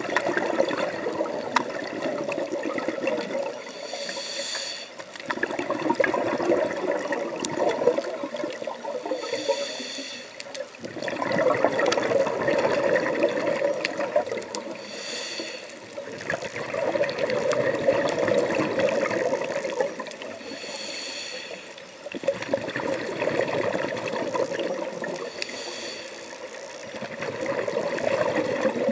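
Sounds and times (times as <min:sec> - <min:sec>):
bubbling exhaust underwater: 0:00.0 - 0:28.9
regulator hissing inhale: 0:03.6 - 0:05.2, 0:09.0 - 0:10.6, 0:14.6 - 0:16.0, 0:20.3 - 0:22.1, 0:25.1 - 0:26.8.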